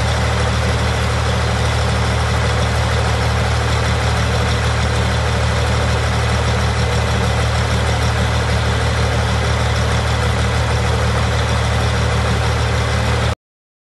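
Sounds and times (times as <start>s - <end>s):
tractor engine running steadily: 0.0s - 13.4s.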